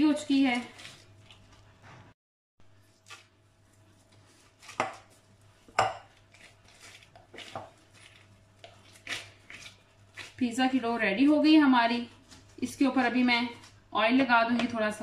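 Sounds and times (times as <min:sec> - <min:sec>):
dough squishing: 0:00.0 - 0:02.1, 0:02.8 - 0:11.2
plastic glove rustling: 0:00.1 - 0:02.2, 0:02.8 - 0:10.5.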